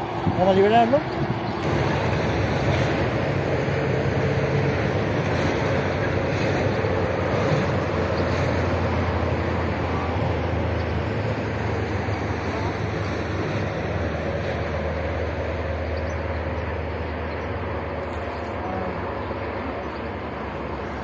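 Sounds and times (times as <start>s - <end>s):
wind rumbling on microphone: 0.0s - 21.0s.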